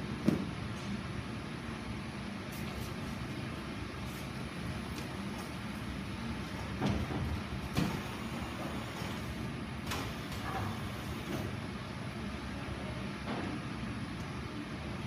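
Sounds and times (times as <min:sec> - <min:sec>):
machine mechanical hum: 0:00.0 - 0:15.0.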